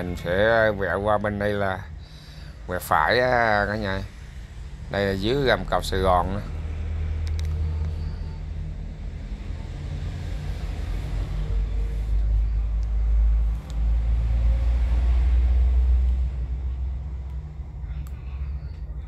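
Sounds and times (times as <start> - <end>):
wind and road rumble: 0.0 - 19.0.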